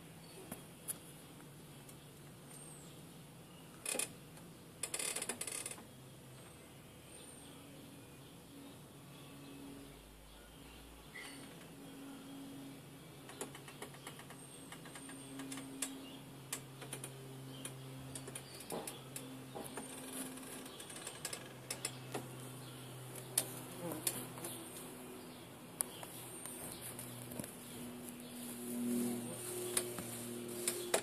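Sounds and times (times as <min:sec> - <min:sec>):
faint high bird chirps: 0:08.2 - 0:16.3
wasps buzzing: 0:12.7 - 0:31.0
sharp ticks and clicks: 0:13.2 - 0:22.3.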